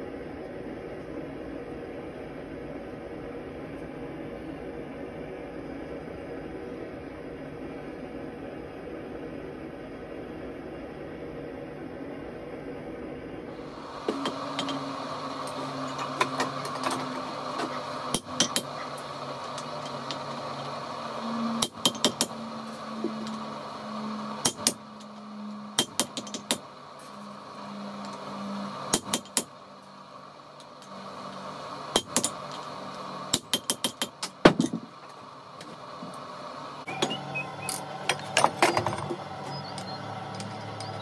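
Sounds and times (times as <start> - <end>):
hammer striking steel on anvil: 18.1 - 18.8, 24.4 - 24.8, 25.8 - 26.6.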